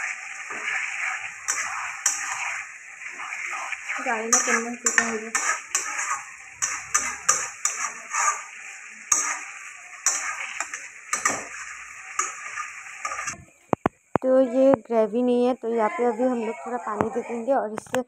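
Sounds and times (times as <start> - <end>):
metal spatula scraping pan: 0.0 - 13.4
steady hiss: 0.0 - 17.6.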